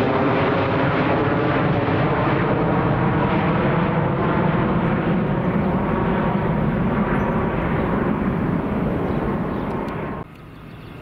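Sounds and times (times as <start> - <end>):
jet engines rumbling: 0.0 - 11.0.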